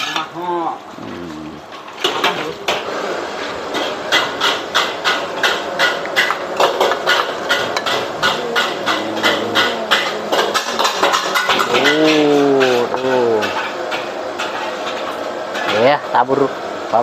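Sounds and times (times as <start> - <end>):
metal spatula clanging on wok: 3.7 - 15.7.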